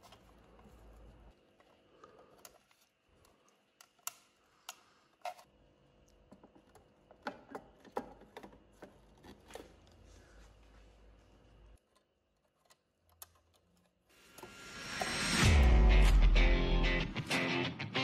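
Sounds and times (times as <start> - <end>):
plastic and metal parts clicking: 1.6 - 5.5, 11.8 - 14.1.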